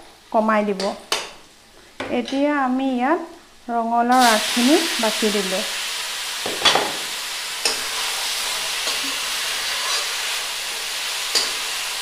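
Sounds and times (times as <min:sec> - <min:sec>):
leaves sizzling in hot oil: 0:04.0 - 0:12.0
stirring against pan: 0:06.4 - 0:12.0.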